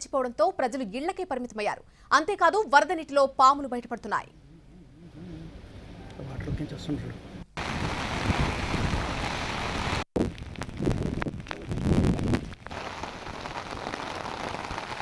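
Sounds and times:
rain hissing: 7.6 - 15.0.

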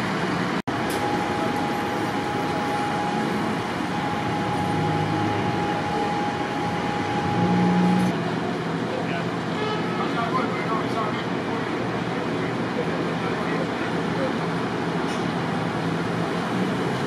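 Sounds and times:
vehicle engines idling: 0.0 - 17.0
thin steady whine: 0.7 - 11.2.

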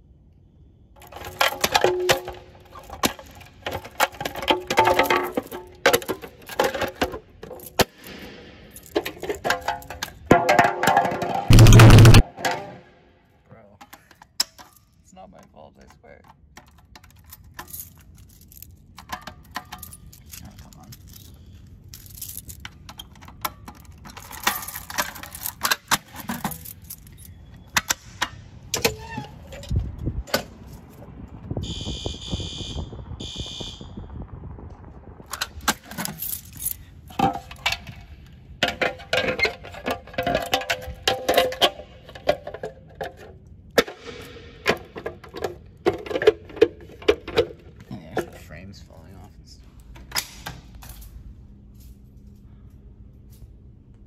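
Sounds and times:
keys jangling: 16.6 - 18.8, 19.4 - 27.4, 35.9 - 36.9.

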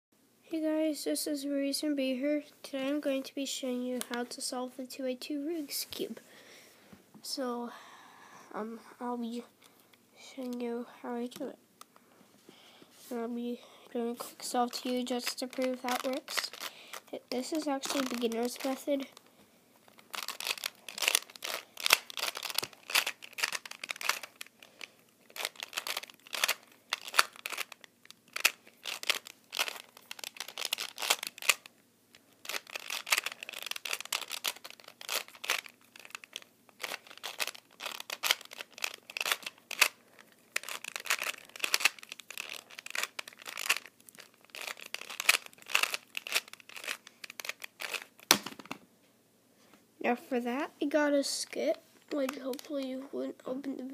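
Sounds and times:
puzzle cube plastic clicking: 20.2 - 31.7, 32.4 - 40.0, 40.6 - 48.8.

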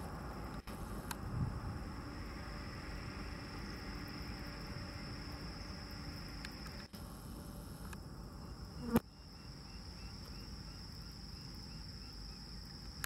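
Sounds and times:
faint low rumble: 0.0 - 8.8
insects chirring: 0.0 - 13.0.

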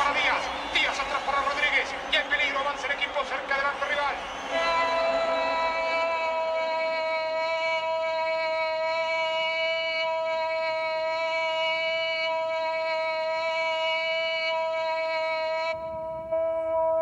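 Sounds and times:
commentator shouting goal: 0.0 - 8.4.

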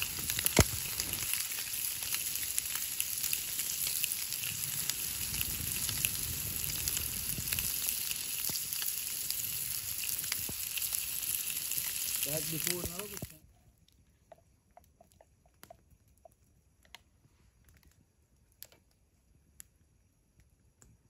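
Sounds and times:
sizzling hiss with crackles: 0.0 - 13.5.

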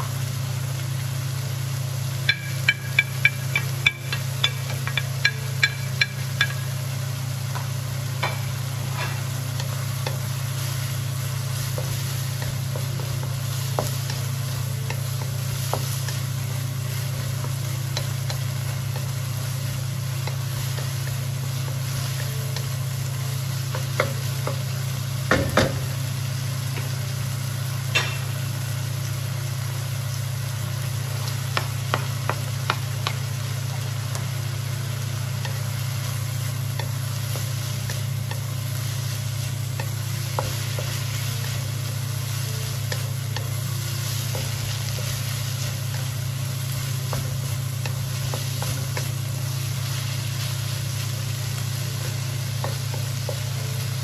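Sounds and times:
pork and onion sizzling in wok: 0.0 - 54.0
spatula tapping plate: 2.3 - 6.6
wooden spatula knocking pan: 2.3 - 6.7, 25.2 - 25.9, 31.5 - 34.2.

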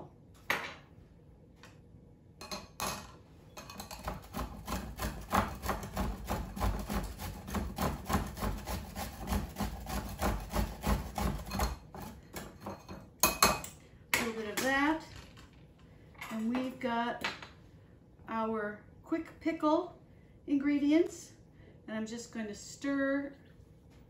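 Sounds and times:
radish grating on metal grater: 3.8 - 11.8.

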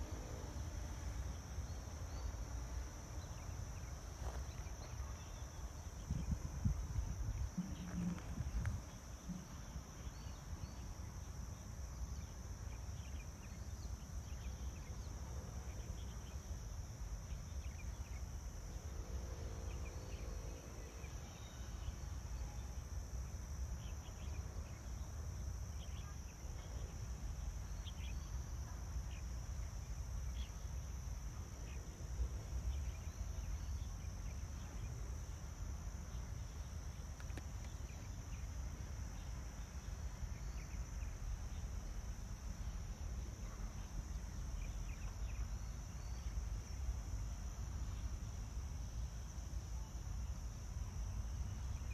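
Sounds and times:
wind rumbling on microphone: 4.6 - 10.3.

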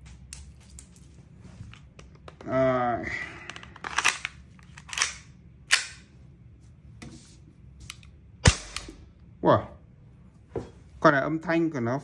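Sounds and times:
metal clacks of pistol loading: 3.8 - 6.0
airsoft pistol shot: 8.4 - 9.0.

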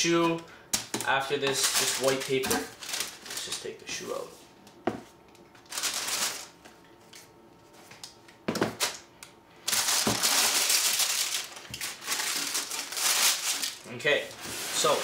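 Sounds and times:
tissue paper rustling and crinkling: 1.6 - 4.3, 5.7 - 6.6, 9.7 - 13.8, 14.4 - 15.0.

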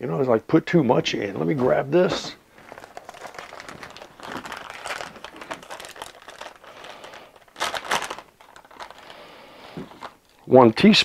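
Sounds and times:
plastic bag crinkling: 2.4 - 10.6.

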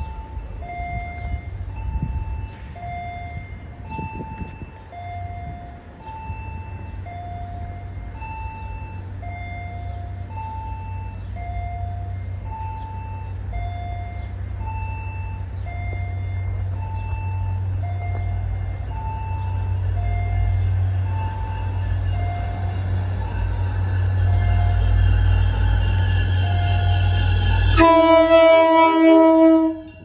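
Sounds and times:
diesel locomotive drone: 0.0 - 30.0
two-note electronic warning signal: 0.0 - 30.0.

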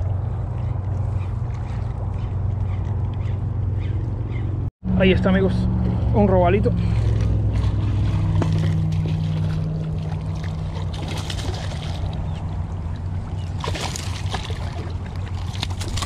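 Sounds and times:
low engine hum: 0.0 - 16.0
fish splashing in water: 6.8 - 16.0.

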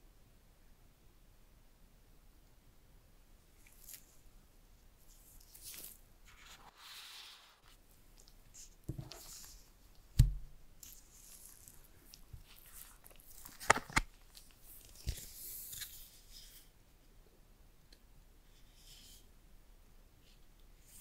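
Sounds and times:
gloved hands rustling packaging: 8.2 - 16.4.

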